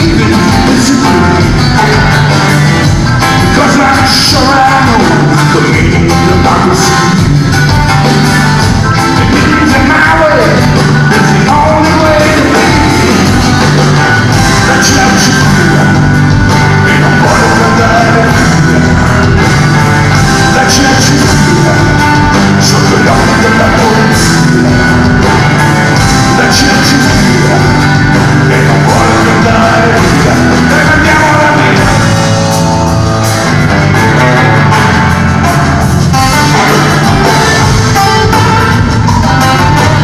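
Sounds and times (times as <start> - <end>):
person singing: 0.0 - 33.0
live rock band playing: 0.0 - 40.0.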